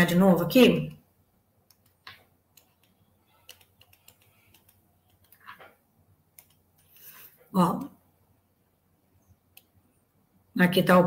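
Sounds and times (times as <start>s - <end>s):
computer input clicks and taps: 1.6s - 5.6s, 6.3s - 6.9s.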